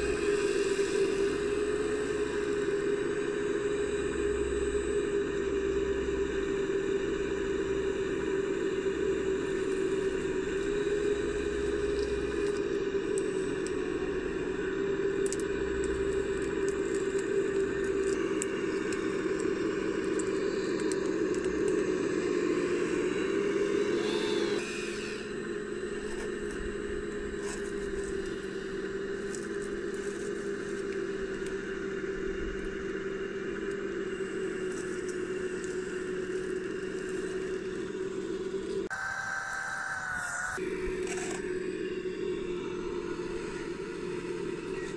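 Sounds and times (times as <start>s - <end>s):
electric motors whining: 0.0s - 44.9s.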